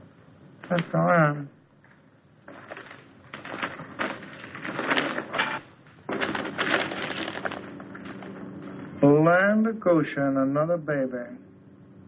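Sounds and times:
newspaper rustling and crackling: 0:02.4 - 0:08.5.

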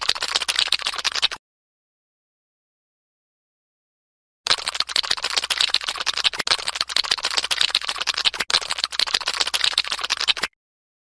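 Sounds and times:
fast crackling and rasping: 0:00.0 - 0:01.4, 0:04.5 - 0:10.5.

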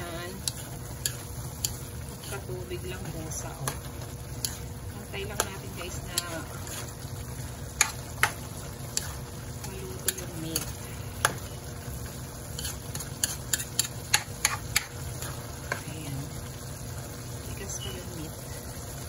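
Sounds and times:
meat sizzling in a wok: 0:00.0 - 0:19.0
spatula clicking against pan: 0:00.4 - 0:01.8, 0:12.6 - 0:14.9.

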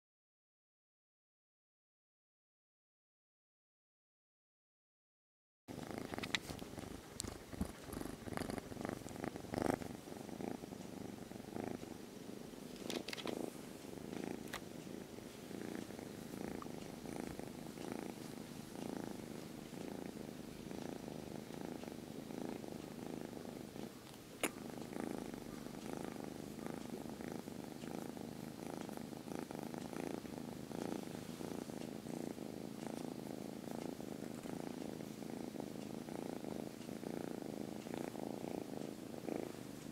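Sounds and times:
soft clicks and rustles: 0:05.7 - 0:10.1, 0:10.8 - 0:23.0, 0:32.8 - 0:35.9
kitten purring: 0:05.7 - 0:39.9.

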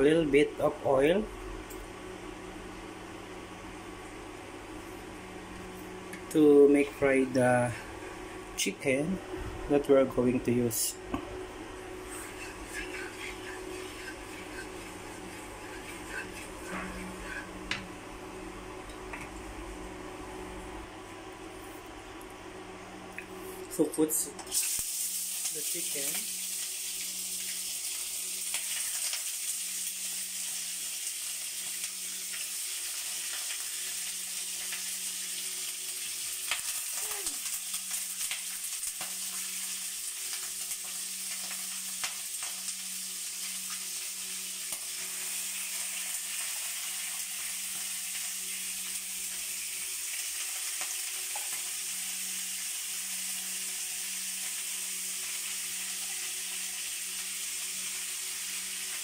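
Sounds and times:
chicken sizzling in hot oil: 0:10.5 - 0:18.5, 0:24.5 - 0:59.0.

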